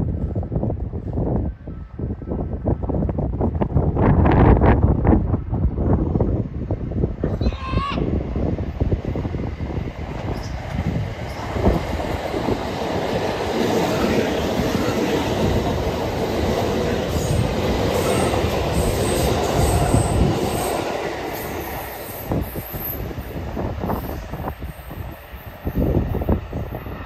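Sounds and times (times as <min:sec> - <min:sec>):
electric train running: 0:08.4 - 0:27.0.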